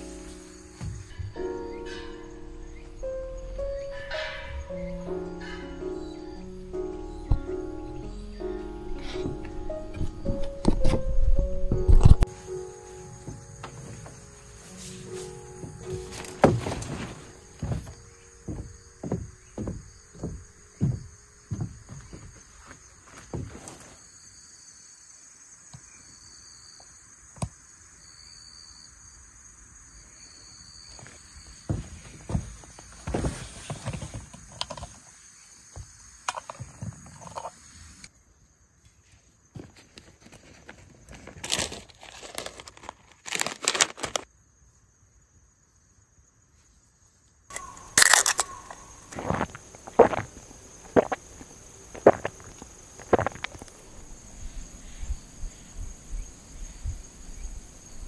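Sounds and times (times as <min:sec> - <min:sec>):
insects chirring: 0:00.0 - 0:58.0
soft thumps: 0:00.3 - 0:12.3, 0:14.9 - 0:23.8
rustling handling sounds: 0:12.0 - 0:24.0, 0:39.6 - 0:44.2
can ring-pull cracking open: 0:47.5 - 0:48.6.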